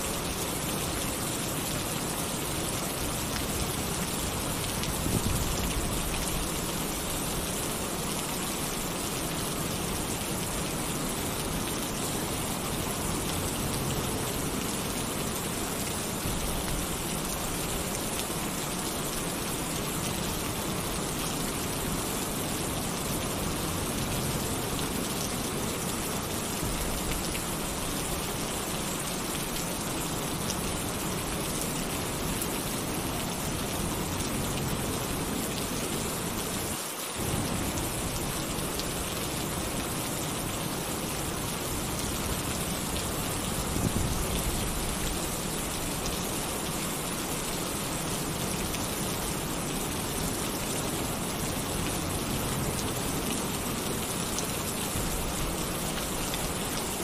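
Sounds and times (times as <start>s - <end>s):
heavy rain on a tin roof: 0.0s - 57.0s.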